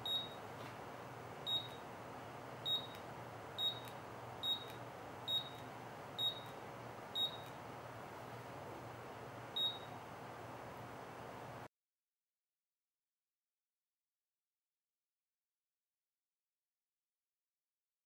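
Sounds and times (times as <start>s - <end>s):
short high beeps: 0.0s - 0.4s, 1.5s - 1.8s, 2.7s - 3.0s, 3.6s - 5.6s, 6.2s - 6.5s, 7.2s - 7.5s, 9.6s - 9.9s
faint steady hum: 0.0s - 11.7s.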